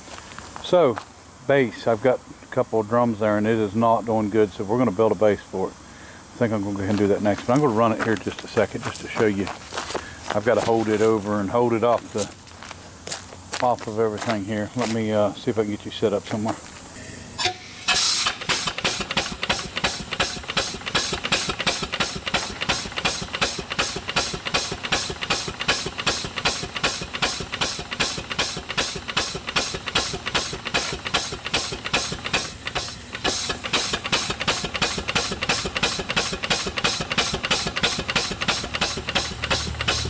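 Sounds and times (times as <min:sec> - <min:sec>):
compressed air hissing: 0:16.0 - 0:40.0
steam engine exhaust chuffing: 0:17.0 - 0:40.0.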